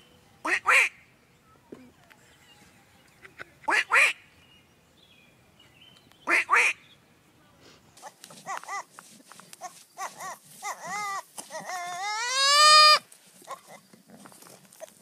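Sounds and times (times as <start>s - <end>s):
young goat bleating: 8.0s - 9.0s, 9.6s - 13.8s.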